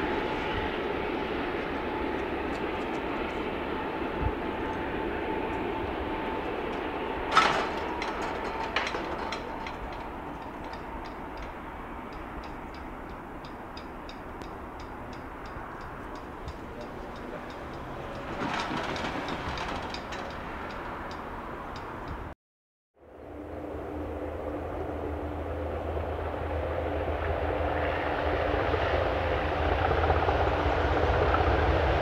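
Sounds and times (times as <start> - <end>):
train rumbling: 0.0 - 22.4, 23.1 - 32.0
rail clicks: 0.3 - 22.3
sharp metallic bang: 6.7 - 20.4.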